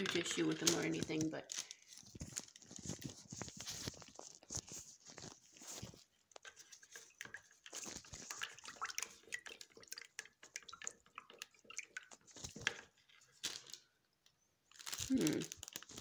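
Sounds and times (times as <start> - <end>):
spoon clicking and scraping plastic: 0.0 - 13.8
spoon stirring liquid: 4.2 - 13.3
liquid sloshing: 5.2 - 13.7.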